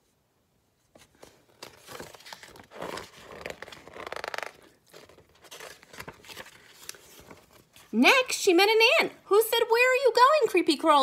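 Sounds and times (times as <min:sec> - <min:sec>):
paper pages rustling: 0:00.9 - 0:08.0.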